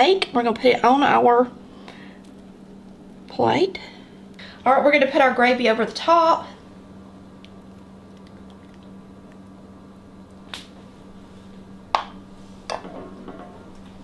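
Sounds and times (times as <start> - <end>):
steady low hum: 0.0 - 14.0
gravy pouring wet sounds: 7.4 - 9.5.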